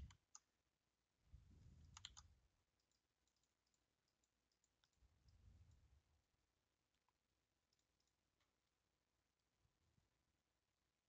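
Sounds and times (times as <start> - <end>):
computer keyboard and mouse clicks: 1.8 - 5.4.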